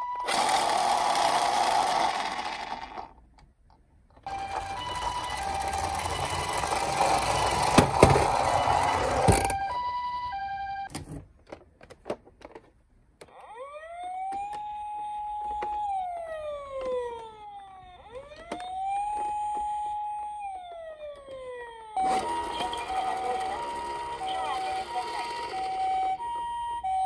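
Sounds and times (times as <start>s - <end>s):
toy car running across wooden table: 0.2s - 3.1s, 4.3s - 9.6s
electronic wail siren: 4.3s - 10.9s, 13.2s - 27.0s
high-low toy beeps: 4.3s - 10.9s.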